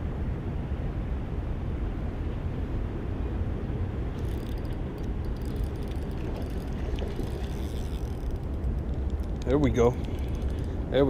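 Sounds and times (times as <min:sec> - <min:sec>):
steady low rumble: 0:00.0 - 0:11.0
fishing reel ticking: 0:04.2 - 0:10.9.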